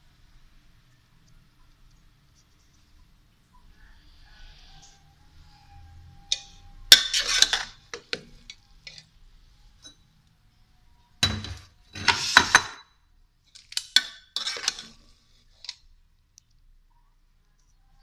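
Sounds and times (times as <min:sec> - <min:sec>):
metal spatula scraping metal pot: 0:04.4 - 0:09.1, 0:11.2 - 0:12.8, 0:13.7 - 0:15.8.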